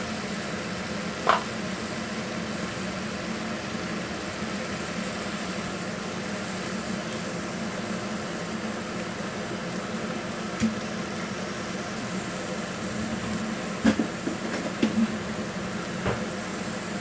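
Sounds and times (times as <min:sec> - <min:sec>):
kitchen cooking hiss: 0:00.0 - 0:17.0
steady mechanical hum: 0:00.0 - 0:17.0.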